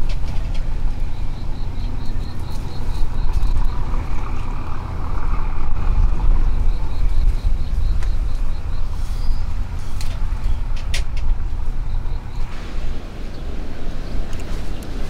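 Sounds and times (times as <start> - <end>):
low outdoor rumble: 0.0 - 15.0
insect chirping in high pulses: 0.9 - 9.8, 11.6 - 12.5.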